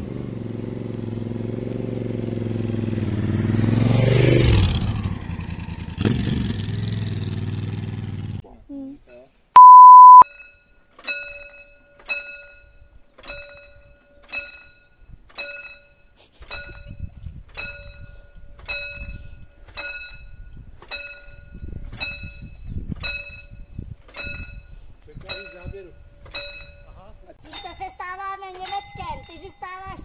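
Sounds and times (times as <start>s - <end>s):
short loud beep: 9.6s - 10.2s.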